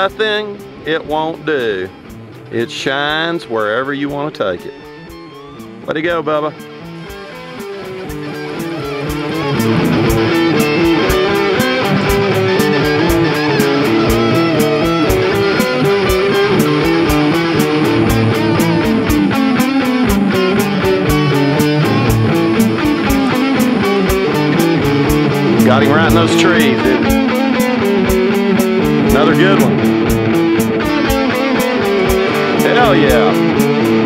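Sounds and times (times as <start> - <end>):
rock music with electric guitar: 0.0 - 34.0.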